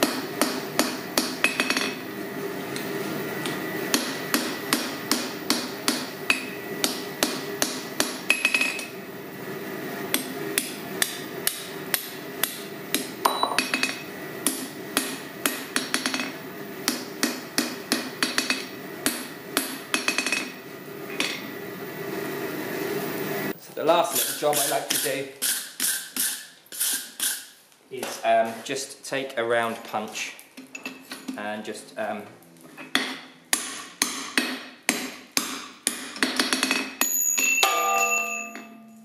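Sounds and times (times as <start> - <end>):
hammer striking steel on anvil: 0.0 - 2.0, 3.4 - 8.9, 10.1 - 20.6, 33.0 - 39.0.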